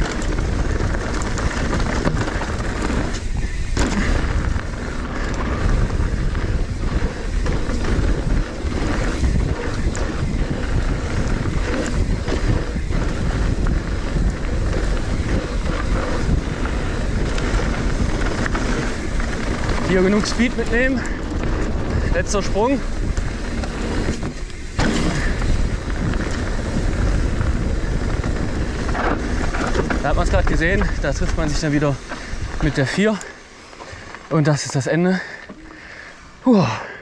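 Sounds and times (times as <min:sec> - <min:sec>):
bike knocking and rattling: 0:00.0 - 0:36.4
wind rushing over microphone: 0:00.0 - 0:36.5
tyres roaring on dirt: 0:00.0 - 0:36.8.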